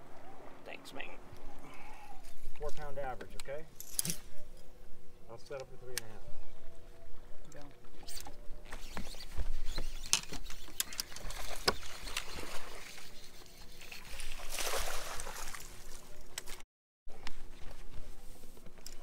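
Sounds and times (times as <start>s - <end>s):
fish splashing in water: 14.1s - 16.0s.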